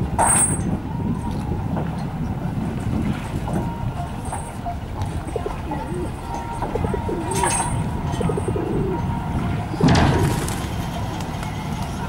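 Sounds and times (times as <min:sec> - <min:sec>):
pigeons cooing: 0:05.2 - 0:10.6.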